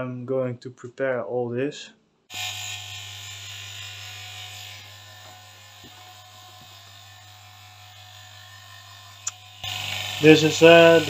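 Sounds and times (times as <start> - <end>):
vacuum pump humming: 9.2 - 11.0.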